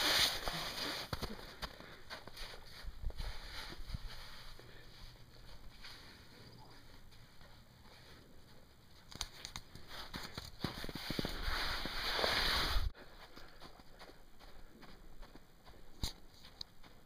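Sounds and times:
running footsteps in snow: 0.0 - 17.0.

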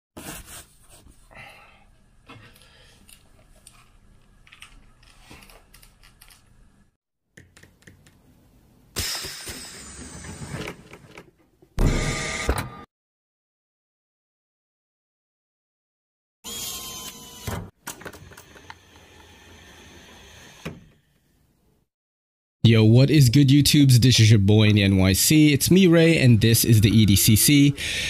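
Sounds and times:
headphones clicks and rustles: 3.0 - 6.5.

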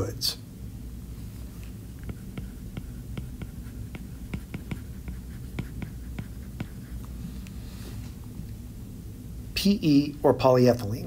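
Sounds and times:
low room hum: 0.0 - 11.0
stylus tapping on tablet screen: 2.0 - 6.8.

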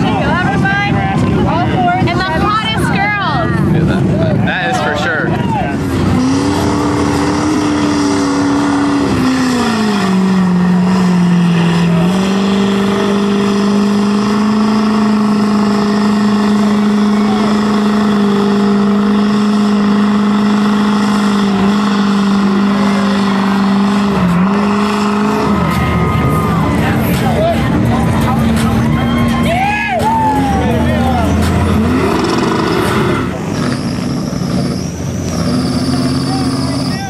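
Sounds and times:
diesel truck engine revving: 0.0 - 37.0.

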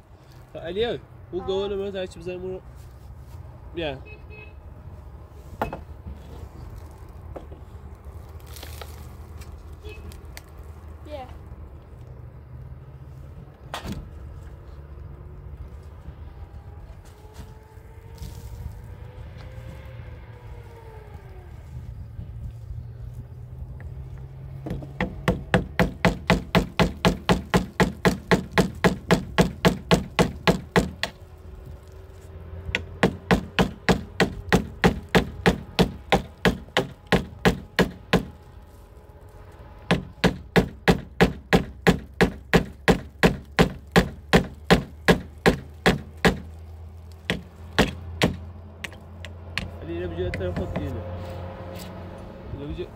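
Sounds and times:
hammer driving nails: 24.6 - 31.2, 32.7 - 38.3, 39.9 - 46.5, 47.3 - 49.0.

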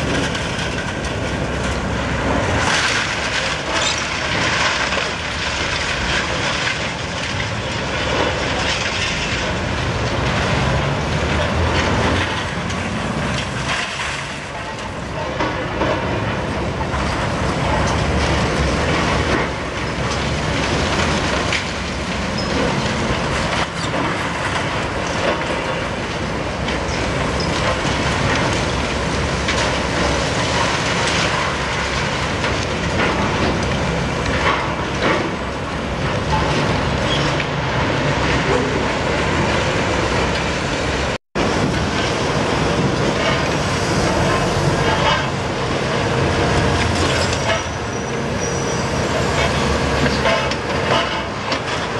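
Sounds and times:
concrete debris cracking and falling: 0.0 - 14.5.

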